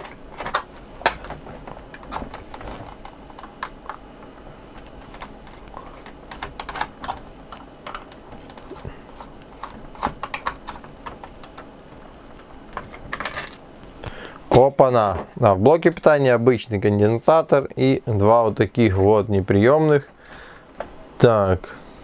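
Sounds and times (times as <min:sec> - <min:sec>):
fingers handling plastic: 0:00.0 - 0:13.4.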